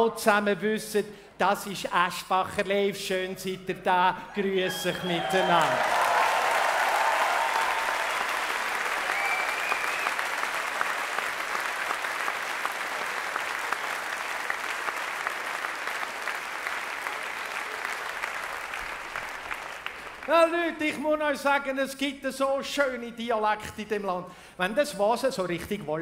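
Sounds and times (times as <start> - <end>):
audience applauding: 4.7 - 20.8.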